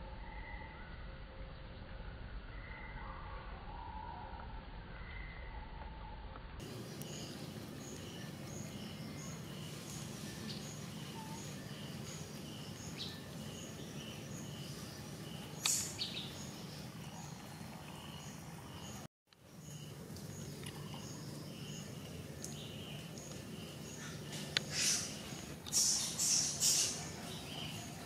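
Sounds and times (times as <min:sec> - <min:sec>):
steady low hum: 0:00.0 - 0:28.0
sharp click: 0:15.6 - 0:16.0.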